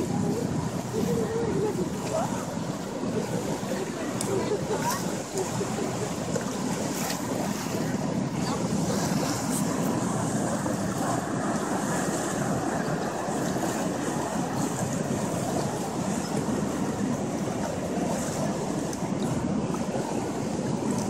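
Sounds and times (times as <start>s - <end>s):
choppy water around boat: 0.0s - 21.0s
wind: 0.0s - 21.0s.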